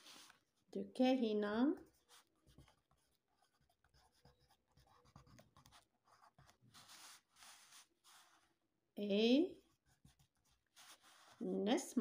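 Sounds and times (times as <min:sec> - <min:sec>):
pencil scratching on paper: 0:01.8 - 0:08.5, 0:09.6 - 0:11.6.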